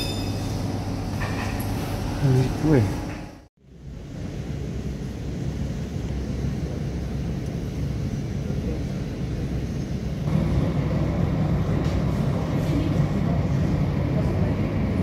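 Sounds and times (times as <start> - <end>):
jet airliners taxiing: 4.0 - 15.0.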